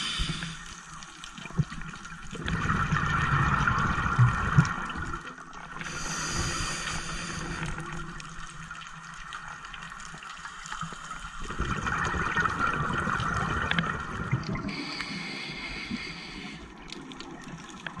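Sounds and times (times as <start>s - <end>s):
breaths through a regulator: 0.0s - 0.8s, 5.8s - 8.0s, 14.6s - 16.9s
exhale bubbling: 0.0s - 0.8s, 5.8s - 8.1s, 11.4s - 17.2s
underwater hiss: 0.0s - 1.0s, 5.8s - 8.2s, 14.6s - 16.9s.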